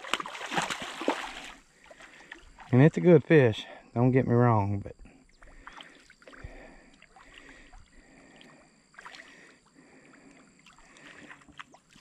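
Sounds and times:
water sloshing and lapping: 0.0 - 3.1, 5.3 - 12.0.

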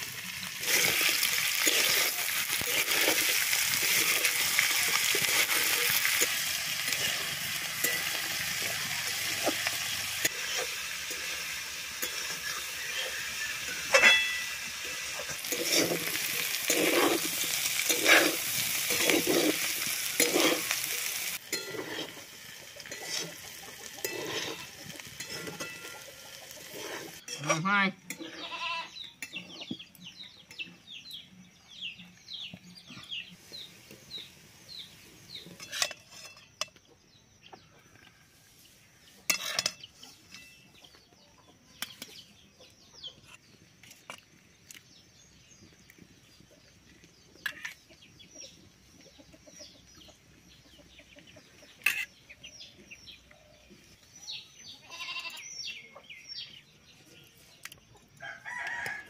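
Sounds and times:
ladle and pots clinking: 0.6 - 19.6, 21.4 - 23.4, 24.0 - 26.1, 35.5 - 36.8, 39.3 - 40.7.

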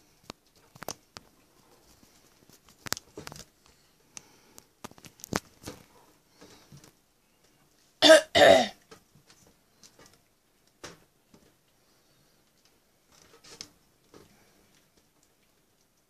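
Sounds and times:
person coughing: 8.0 - 8.8.

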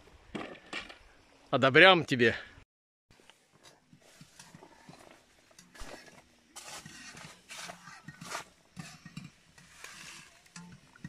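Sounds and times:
metal spoon scraping in pot: 3.9 - 11.0.

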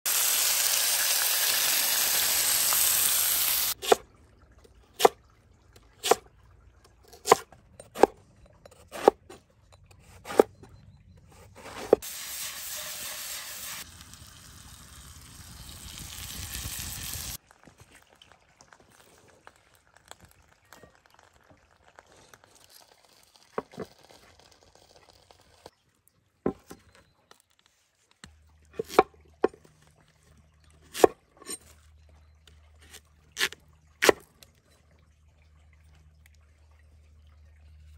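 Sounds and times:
meat sizzling in hot oil: 0.1 - 3.8, 12.0 - 17.4.

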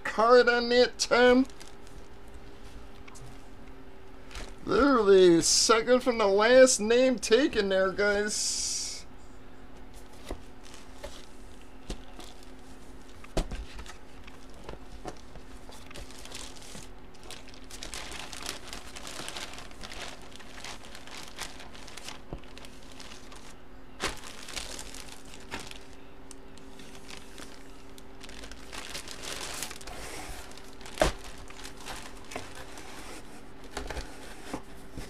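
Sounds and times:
plastic bag crinkling: 1.3 - 3.2, 4.2 - 4.7, 10.5 - 33.0.

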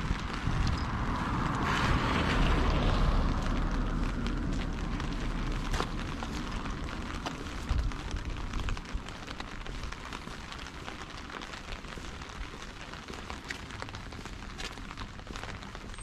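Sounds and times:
low rumble: 0.0 - 10.2
rain pattering: 0.0 - 16.0.

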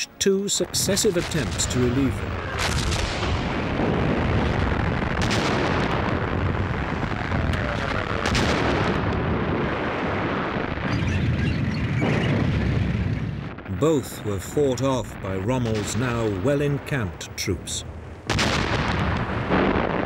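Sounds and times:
sharp cannon shots: 0.8 - 14.4, 18.2 - 20.0
low rumble of guns: 17.8 - 20.0.

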